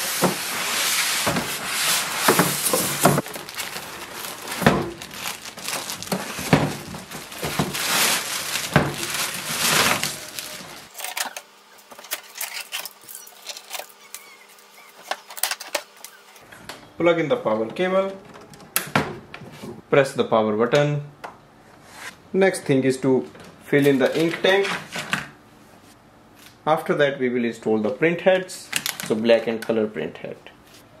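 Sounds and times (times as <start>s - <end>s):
plastic bag crinkling: 0.2s - 11.1s
packaging knocks and clicks: 2.2s - 10.9s.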